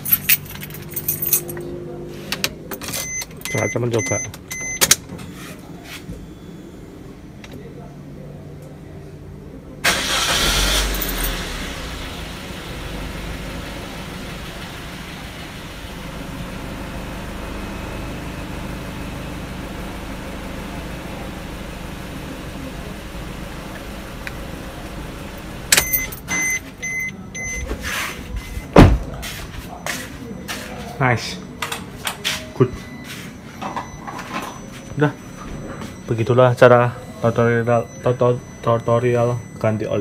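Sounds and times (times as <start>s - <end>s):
car engine starting and idling: 9.7s - 27.8s
car door opening clicks: 25.7s - 26.5s.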